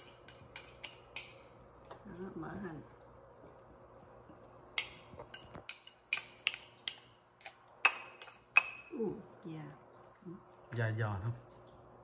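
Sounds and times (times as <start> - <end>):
chopsticks clinking on ceramic bowl: 0.0 - 2.0, 4.7 - 7.2.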